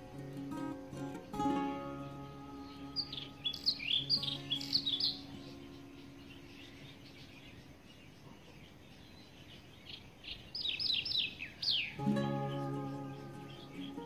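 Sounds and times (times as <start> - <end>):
background music: 0.0 - 6.3, 12.0 - 14.0
strummed guitar chord: 0.0 - 6.6, 12.0 - 14.0
bird chirping: 0.0 - 14.0.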